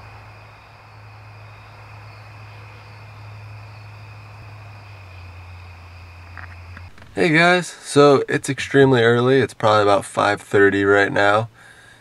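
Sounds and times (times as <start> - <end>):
low hum: 0.0 - 9.2
crickets trilling: 0.0 - 12.0.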